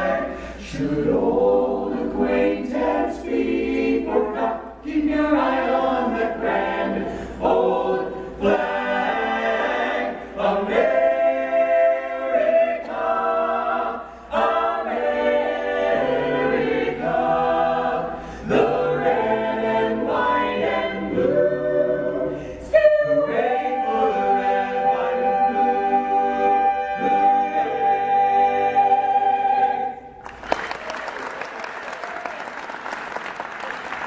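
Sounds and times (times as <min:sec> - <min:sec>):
vocal group singing in harmony: 0:00.0 - 0:30.3.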